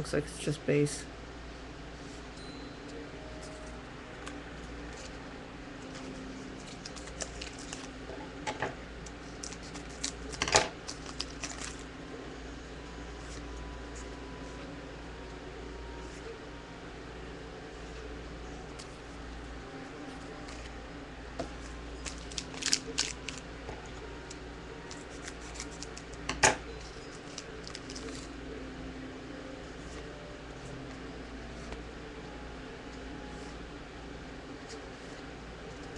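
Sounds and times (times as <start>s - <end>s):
card wrappers crackling: 5.8s - 8.0s, 9.0s - 11.9s, 21.5s - 23.5s, 24.2s - 26.2s, 26.8s - 28.4s.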